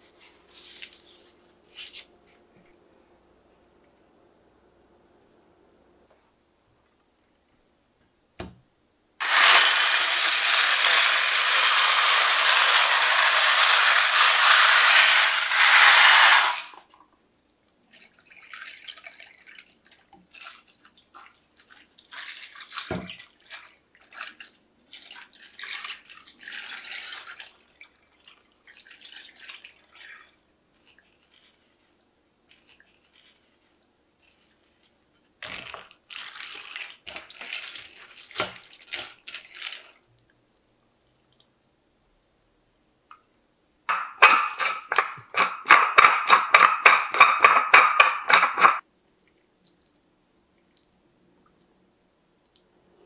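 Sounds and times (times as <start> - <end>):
dry pasta rattling into dish: 9.2 - 16.8
milk pouring and splashing: 16.5 - 40.3, 48.3 - 51.8.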